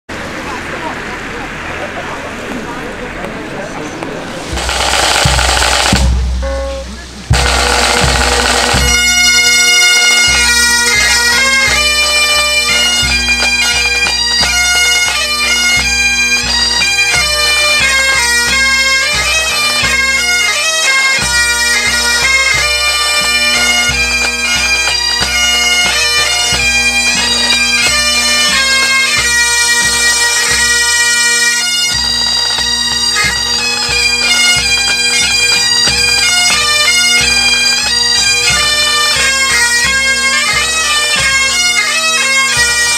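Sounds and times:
bagpipes playing a tune: 4.4 - 42.9
bass drum beating: 4.5 - 9.6.

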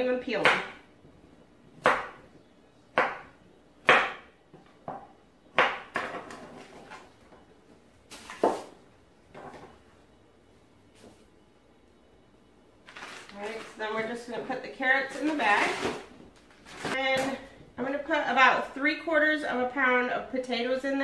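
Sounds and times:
knife chopping on wooden board: 1.8 - 2.2, 3.0 - 6.5.

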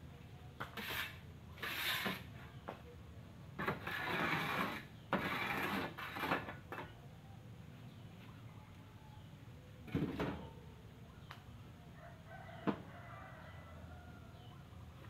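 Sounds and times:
shovel scraping through gravel: 0.8 - 2.3, 3.6 - 6.5.

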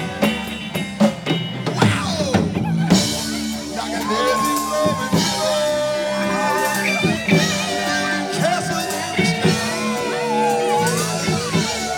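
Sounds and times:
loud rock band music: 0.0 - 11.9.

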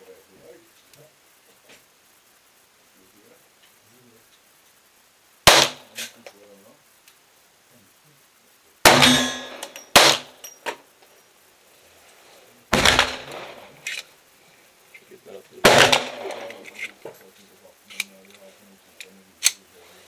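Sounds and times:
pistol shots: 5.5 - 6.1, 8.8 - 10.4, 12.7 - 14.0, 15.6 - 16.8
light metallic clinks: 9.0 - 11.3.

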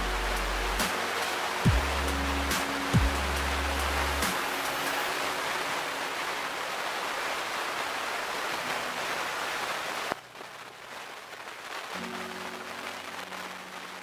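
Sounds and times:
background music: 0.0 - 6.6, 11.9 - 14.0
steady static hiss: 0.0 - 14.0.

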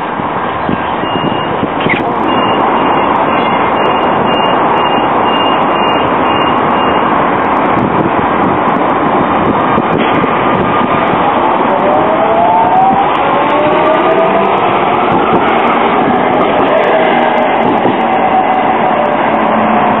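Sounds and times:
steady loud rushing noise: 0.0 - 20.0
high beeps: 1.0 - 7.1
tram motor whine: 1.0 - 20.0.

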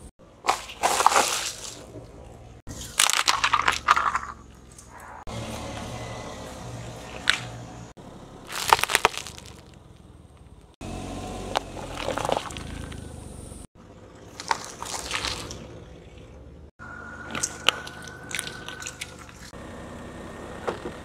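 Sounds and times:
tyre crushing small objects: 0.4 - 5.2, 8.5 - 10.6, 11.5 - 13.1, 14.3 - 15.6
green onions being crushed: 0.5 - 1.9, 8.5 - 9.7, 14.4 - 15.6.

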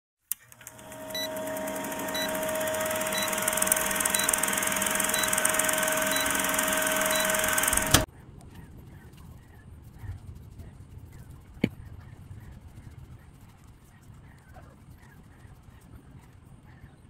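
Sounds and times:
film projector rattle and whirr: 0.3 - 8.1
constant hum: 0.3 - 17.0.

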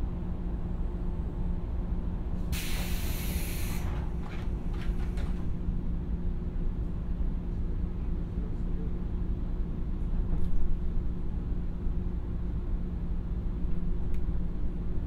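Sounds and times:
compressed air hissing: 2.6 - 3.9.

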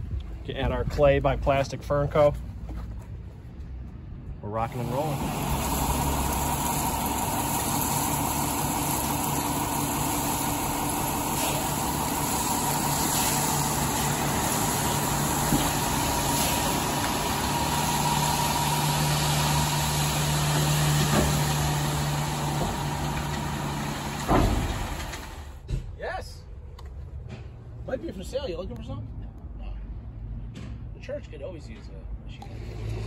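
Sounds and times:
truck engine running: 4.5 - 25.6
gravel sliding out of truck: 4.7 - 25.4.

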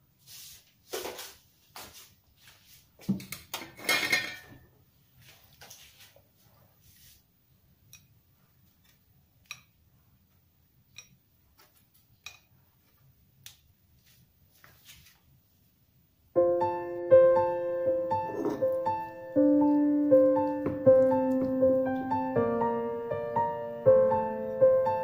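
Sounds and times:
kitchenware clinks and taps: 3.1 - 4.6, 18.3 - 18.8
piano music: 16.4 - 25.0.

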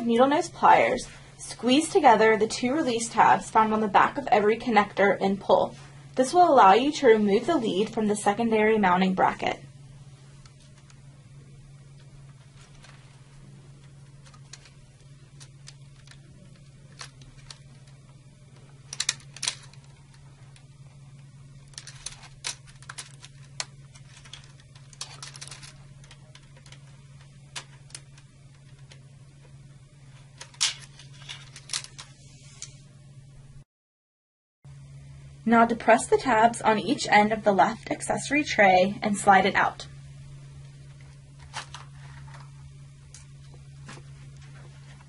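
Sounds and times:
low hum: 0.0 - 33.6, 34.7 - 45.0
plastic connectors clicking and rattling: 14.2 - 18.0, 18.8 - 20.6, 21.6 - 29.0, 30.4 - 32.1.

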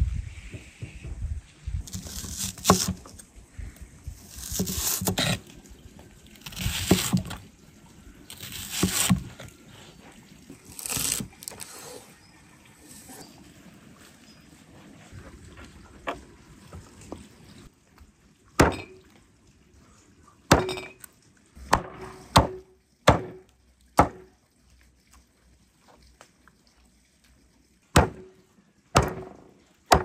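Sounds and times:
knife slicing onion: 1.9 - 3.2, 4.3 - 5.4, 6.4 - 7.4, 8.3 - 9.3.

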